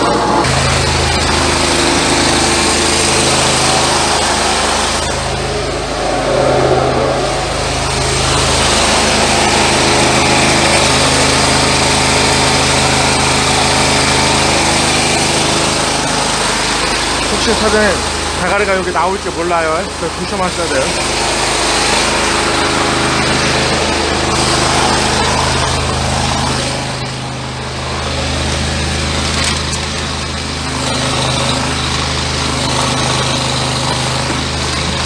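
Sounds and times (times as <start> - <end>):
drain jetter engine running: 0.0 - 35.0
hose jetting water: 0.0 - 35.0.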